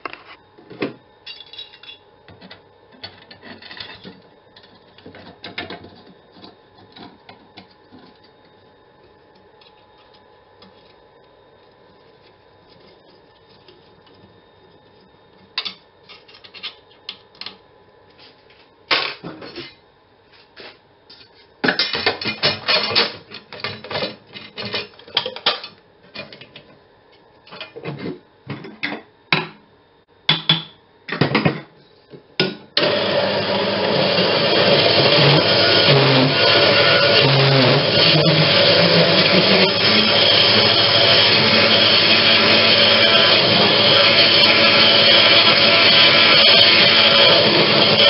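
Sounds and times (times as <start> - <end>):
steady loud machine noise: 32.8 - 48.0.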